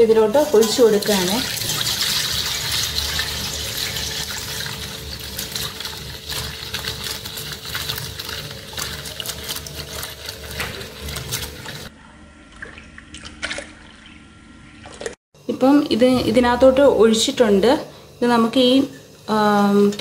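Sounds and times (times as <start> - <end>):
wine pouring and splashing: 0.4 - 11.9.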